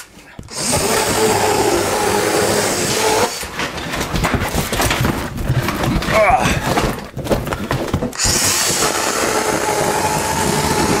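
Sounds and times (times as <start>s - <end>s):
cardboard and paper crackling: 3.4s - 8.2s.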